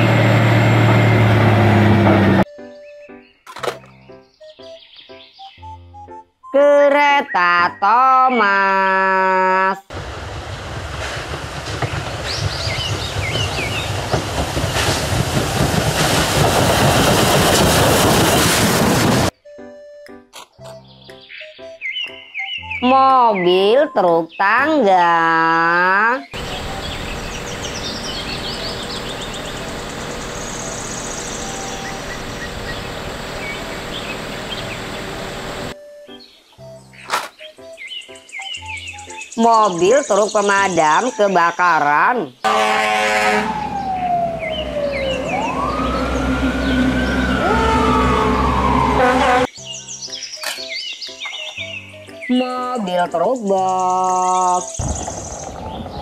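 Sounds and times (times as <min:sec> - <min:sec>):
faint birds chirping: 0:02.5 - 0:09.1, 0:20.5 - 0:42.6, 0:43.7 - 0:47.8, 0:49.6 - 0:56.0
steam locomotive running: 0:09.9 - 0:19.4, 0:26.4 - 0:35.8.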